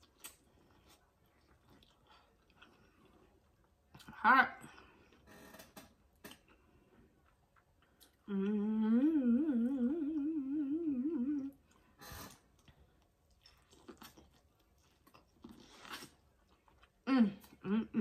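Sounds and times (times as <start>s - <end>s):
chewing and mouth clicks: 0.0s - 4.2s, 7.2s - 8.3s, 11.4s - 17.6s
woman humming: 8.3s - 11.6s, 17.1s - 18.0s.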